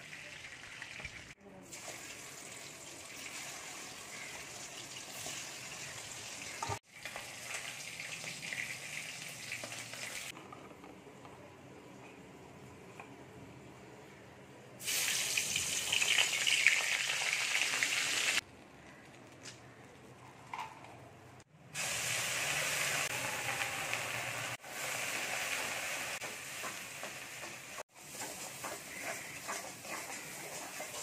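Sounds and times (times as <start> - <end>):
hot fat sizzling: 14.8 - 18.4, 21.8 - 31.0
paste sizzling: 21.8 - 31.0
spatula stirring: 27.9 - 31.0.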